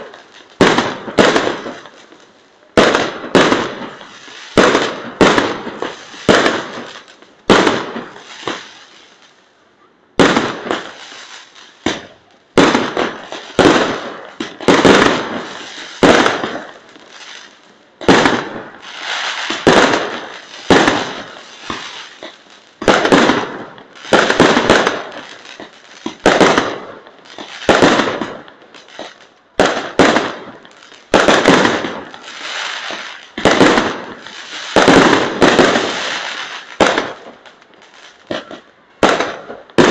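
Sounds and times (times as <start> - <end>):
fireworks bangs: 0.0 - 9.4, 10.1 - 39.9.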